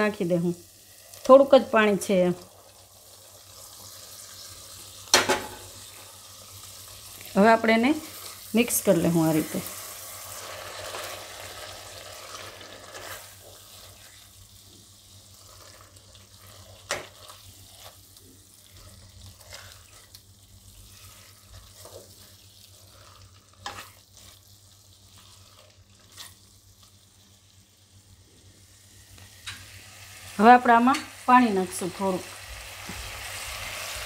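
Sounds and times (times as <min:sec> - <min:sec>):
wet stirring in a pan: 0:00.7 - 0:27.7.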